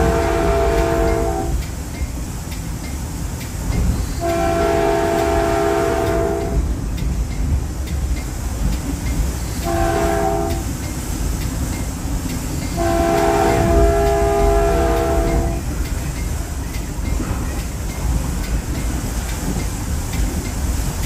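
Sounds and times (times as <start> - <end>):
train horn blasts: 0.0 - 1.6, 4.2 - 6.7, 9.6 - 10.7, 12.7 - 15.7
train rumbling on rails: 0.0 - 21.0.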